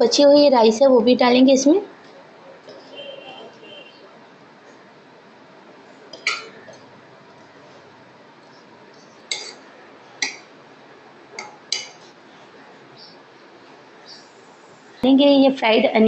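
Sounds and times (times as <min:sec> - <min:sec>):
spoon clinking on metal pot: 0:11.4 - 0:12.0.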